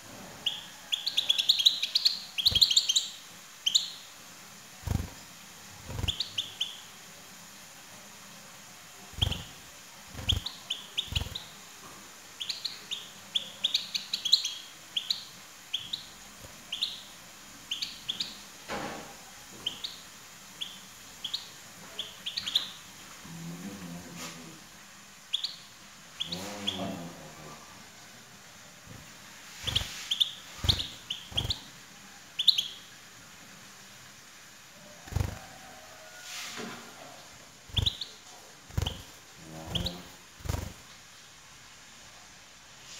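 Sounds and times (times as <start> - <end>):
goldfinch chirps: 0.4 - 4.1, 5.9 - 6.9, 9.1 - 9.6, 10.2 - 11.6, 12.4 - 18.5, 19.6 - 20.0, 20.6 - 22.9, 25.3 - 27.0, 29.6 - 31.7, 32.4 - 33.0, 37.7 - 40.8
wings fluttering: 4.8 - 6.4, 9.1 - 11.5, 29.6 - 31.7, 35.0 - 35.7, 37.6 - 41.0.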